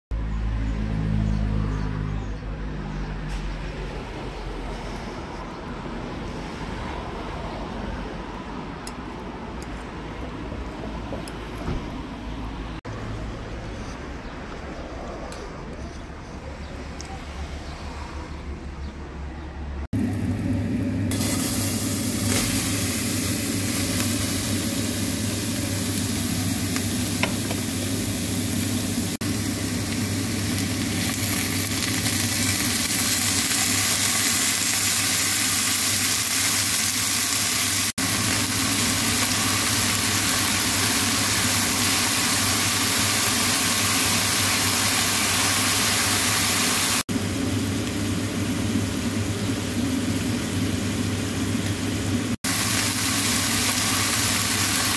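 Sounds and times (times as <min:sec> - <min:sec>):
peppers sizzling in frying pan: 0:20.0 - 0:54.9.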